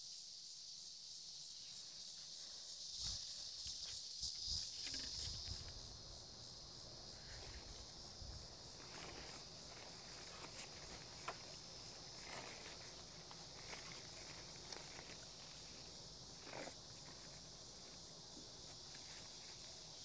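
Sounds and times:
high-pitched insect chorus: 0.0 - 20.0
clicks and rustles handling plants: 3.0 - 5.9, 7.2 - 20.0.

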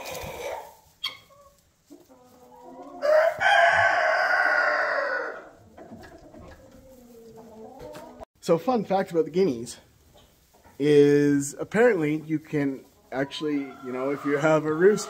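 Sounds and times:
soft chicken calls: 0.0 - 8.2, 12.0 - 15.0
rooster crowing: 3.0 - 5.5.

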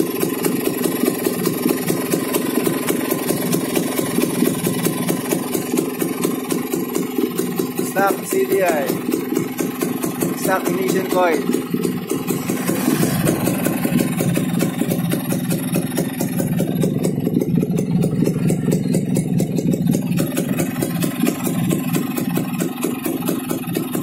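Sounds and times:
two-stroke engine idling: 0.0 - 24.0.

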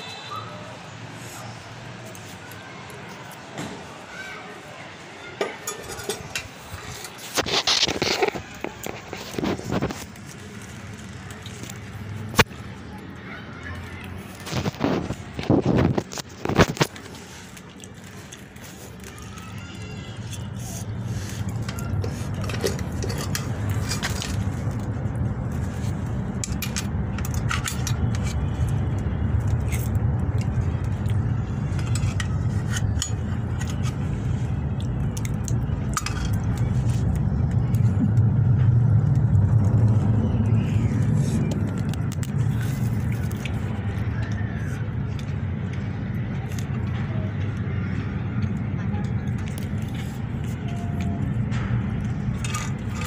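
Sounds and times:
objects clicking and scraping: 5.4 - 53.0
steady low rumble: 20.9 - 53.0.

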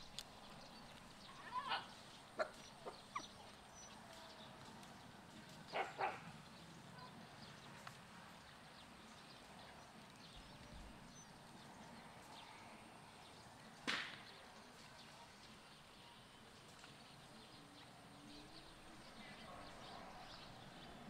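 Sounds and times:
short sharp crack: 13.8 - 14.3.

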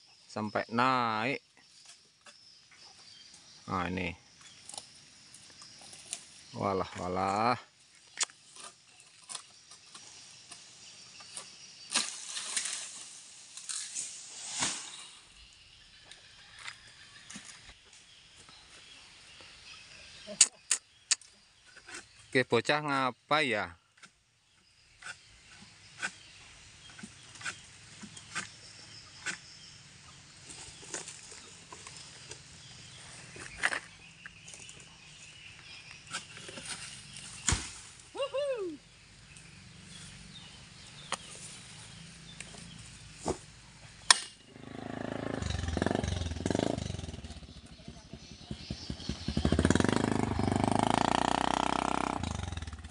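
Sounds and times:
palm fronds rustling and scraping: 4.3 - 19.0, 30.2 - 38.2, 38.9 - 44.2
palm fronds snapping and cracking: 11.9 - 14.9, 36.2 - 38.1.

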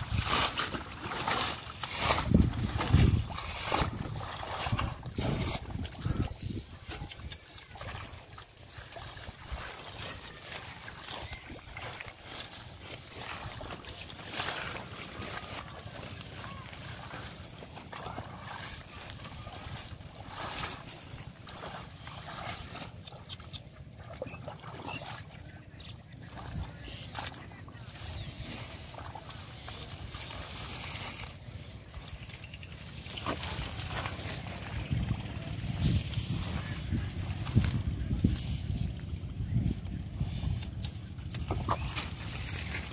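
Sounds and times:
wind rumble on microphone: 0.0 - 0.9, 1.9 - 8.2, 31.8 - 42.9
feet splashing in muddy water: 0.0 - 42.9
hands groping through mud: 26.0 - 38.4.

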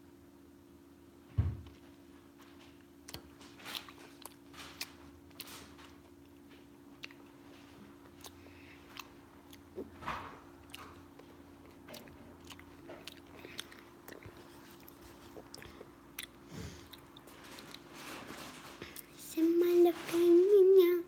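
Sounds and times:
faint steady hum: 0.0 - 21.0
person chewing food: 3.0 - 17.9.

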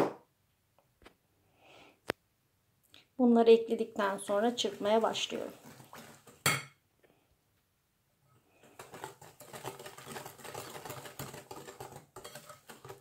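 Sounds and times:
whisk rattling in glass bowl: 4.0 - 6.6, 8.6 - 13.0.

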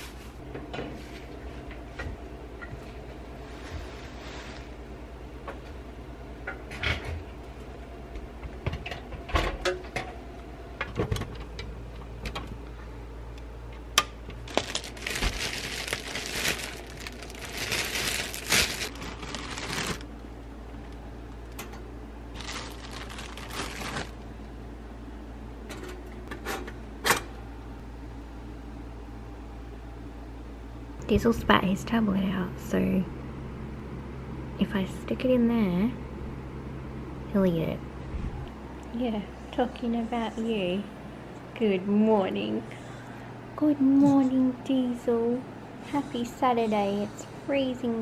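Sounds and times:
plastic bag rustling: 14.4 - 20.1, 22.3 - 24.3.

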